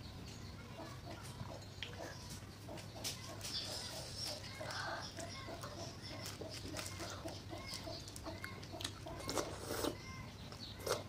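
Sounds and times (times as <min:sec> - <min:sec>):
chewing food: 0:01.1 - 0:11.0
utensil scraping styrofoam container: 0:09.2 - 0:10.1.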